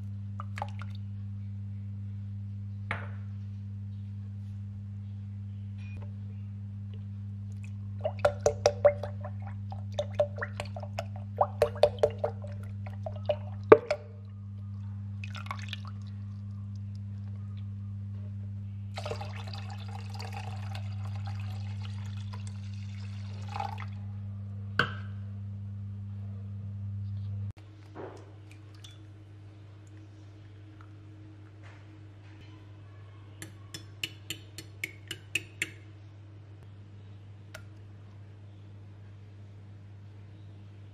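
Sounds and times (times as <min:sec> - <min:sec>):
low hum: 0:00.0 - 0:19.2, 0:23.9 - 0:33.7
liquid dripping into a pot: 0:00.4 - 0:01.0, 0:07.5 - 0:14.3, 0:15.2 - 0:17.0, 0:19.0 - 0:24.0, 0:28.4 - 0:29.2, 0:33.4 - 0:35.8
water pouring: 0:07.6 - 0:14.2, 0:15.2 - 0:16.4, 0:19.0 - 0:24.0.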